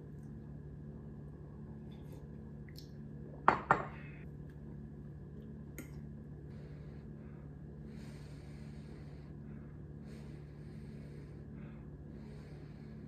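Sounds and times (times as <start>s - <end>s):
steady low hum: 0.0s - 13.0s
ceramic mug knocking on wooden table: 3.5s - 4.0s.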